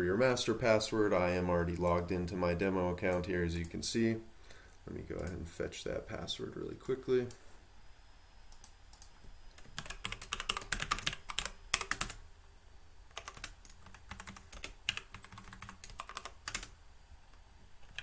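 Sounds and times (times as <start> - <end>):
typing on computer keyboard: 8.6 - 12.2, 13.1 - 16.7.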